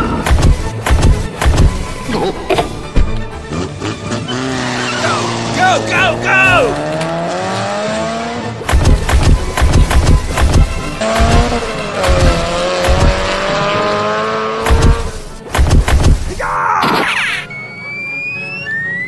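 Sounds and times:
background music with heavy thumps: 0.0s - 4.0s, 8.6s - 16.8s
car engine rising and falling: 0.0s - 16.2s
tyre squeal: 16.8s - 19.0s.

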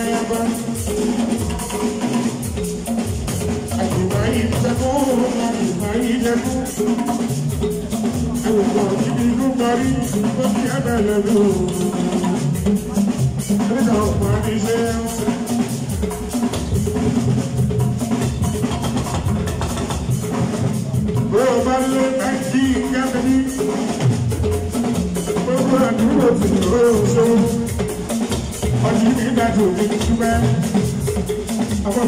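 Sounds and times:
man singing into a microphone: 0.0s - 0.8s, 3.8s - 6.9s, 8.4s - 12.2s, 13.7s - 15.4s, 21.3s - 23.7s, 25.4s - 27.7s, 28.8s - 30.8s
drum kit and percussion beat: 0.0s - 32.0s.

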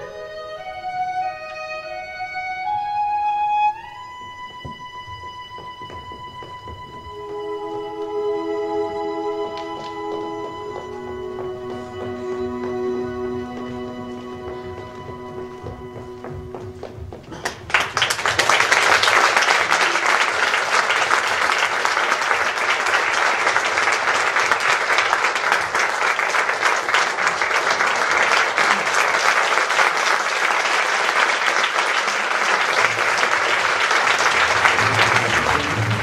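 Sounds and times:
music: 0.0s - 17.3s, 34.1s - 36.0s
audience applauding: 8.0s - 36.0s.

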